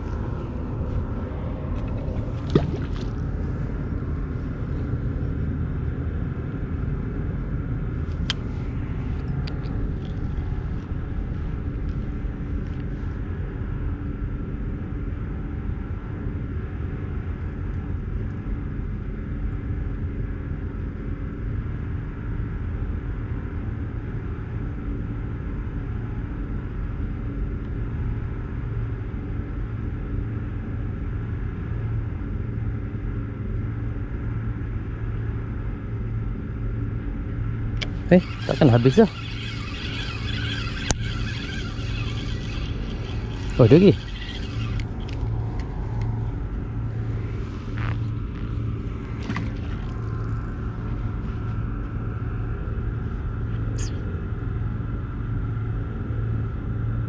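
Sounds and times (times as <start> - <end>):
engine droning: 0.0 - 17.1, 34.8 - 56.6.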